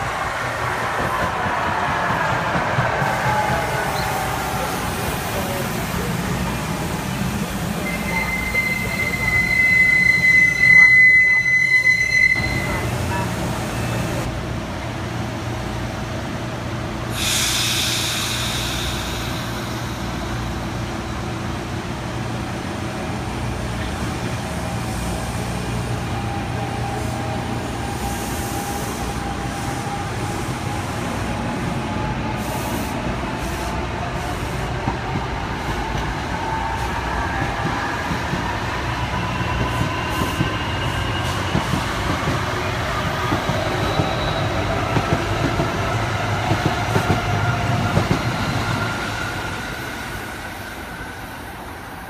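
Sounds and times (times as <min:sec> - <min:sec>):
air hiss: 0:17.1 - 0:20.6.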